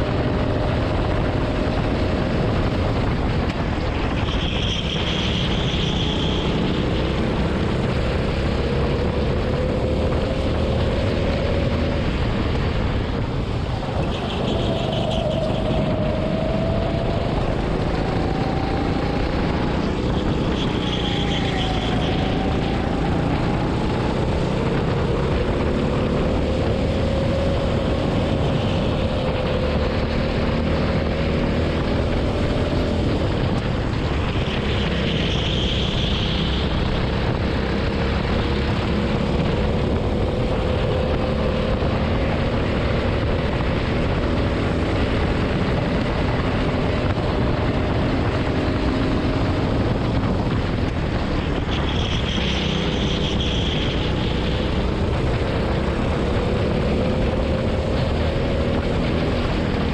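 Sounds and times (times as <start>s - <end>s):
racing kart engine drone: 0.0s - 59.9s
wind rushing on microphone: 0.0s - 59.9s.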